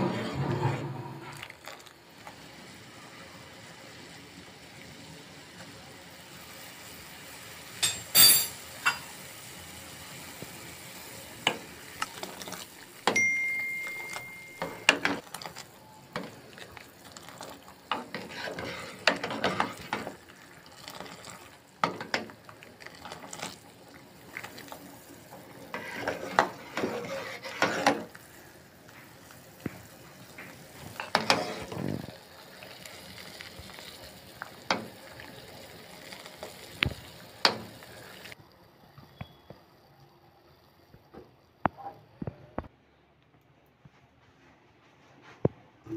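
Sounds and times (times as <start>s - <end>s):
metal ladle scraping a pan: 0.0s - 1.5s, 17.8s - 20.2s, 25.5s - 28.2s, 31.0s - 31.9s
liquid bubbling: 14.1s - 28.1s.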